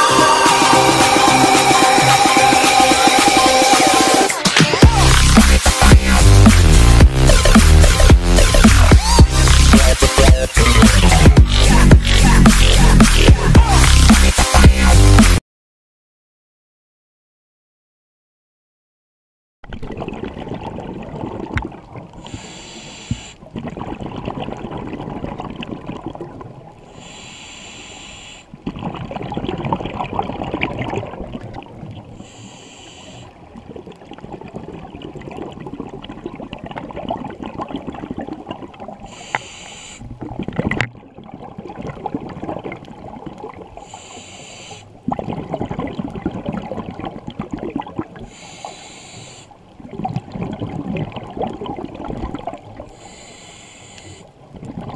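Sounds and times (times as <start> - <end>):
regulator hissing inhale: 22.2 - 23.4, 26.8 - 28.5, 32.2 - 33.4, 39.1 - 40.1, 43.8 - 45.0, 48.3 - 49.6, 52.9 - 54.4
bubbling exhale: 22.2 - 26.1, 39.0 - 40.6, 43.7 - 46.7, 47.5 - 54.9.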